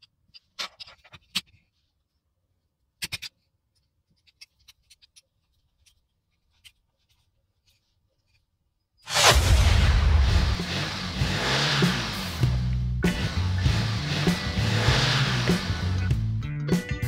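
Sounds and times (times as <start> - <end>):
light ticks and scratches: 3.0 - 8.6
bass-heavy music: 9.1 - 17.0.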